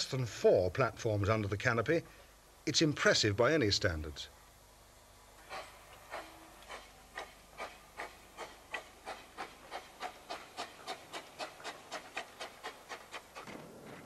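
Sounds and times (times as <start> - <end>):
steam locomotive exhaust chuffing: 5.4 - 14.0.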